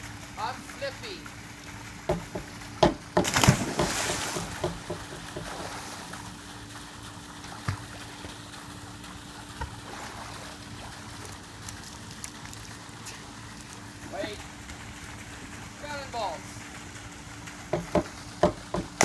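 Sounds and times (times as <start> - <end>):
faint steady hum: 0.0 - 19.0
water splashing: 0.0 - 19.0
gentle water sloshing: 0.2 - 15.8.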